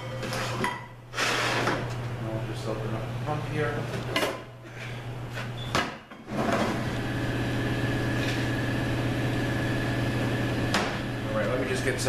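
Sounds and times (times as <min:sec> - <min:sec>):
machine humming: 0:06.3 - 0:12.0.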